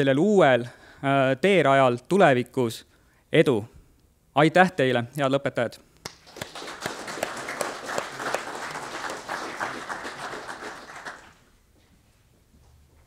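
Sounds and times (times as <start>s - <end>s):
audience applauding: 6.1s - 11.5s.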